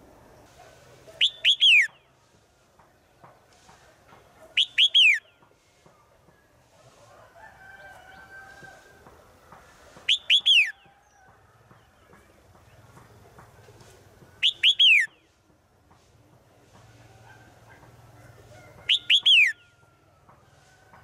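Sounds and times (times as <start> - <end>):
bird singing falling whistled notes: 1.2 - 2.2, 4.6 - 5.4, 10.0 - 10.8, 14.4 - 15.4, 18.8 - 19.8.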